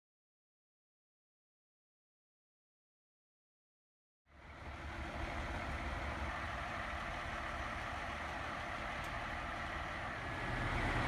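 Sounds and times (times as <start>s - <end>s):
diesel engines idling: 4.3s - 11.0s.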